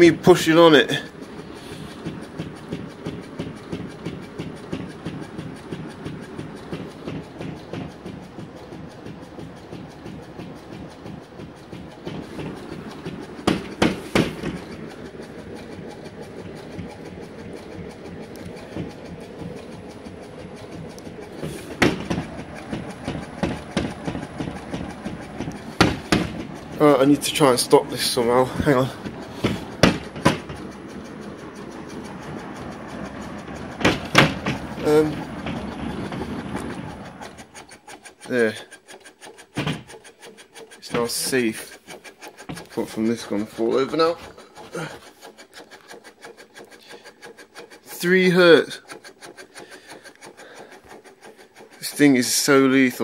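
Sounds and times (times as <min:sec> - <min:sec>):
fast mechanical clatter of fan blades: 0:00.0 - 0:53.0
subwoofer rattling and knocking: 0:02.0 - 0:37.6.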